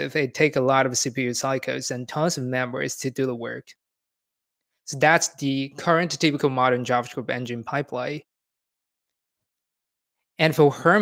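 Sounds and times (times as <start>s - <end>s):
person speaking: 0.0s - 3.7s, 4.9s - 8.2s, 10.4s - 11.0s.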